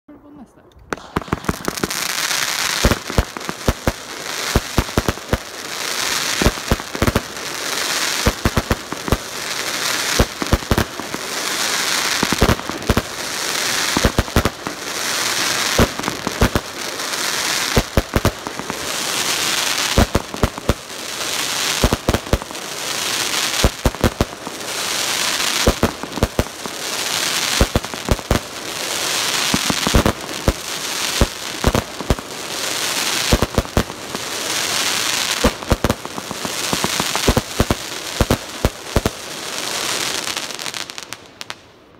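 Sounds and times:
firework launch bangs: 0.9 - 3.9
firework crackling hiss: 0.9 - 41.6.

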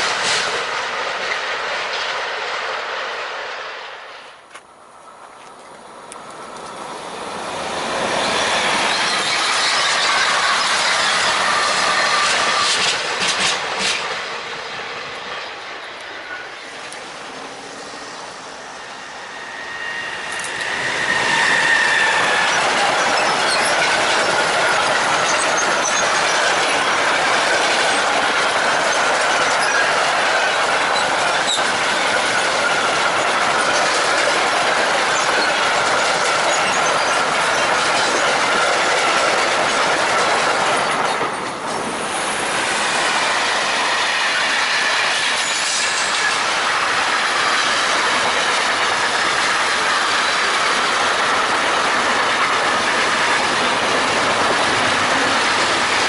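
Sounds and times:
freight train wheel and rail noise: 0.0 - 56.0
wheels squealing: 7.7 - 13.5, 17.5 - 39.4.

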